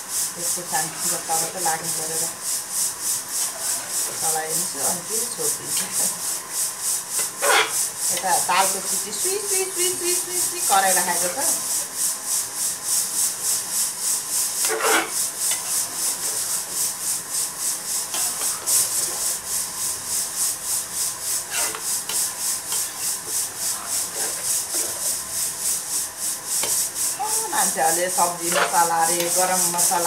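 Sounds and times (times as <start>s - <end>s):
ladle scraping metal pan: 14.6s - 15.7s, 21.4s - 25.0s, 28.4s - 29.5s
insect calling: 14.6s - 29.9s.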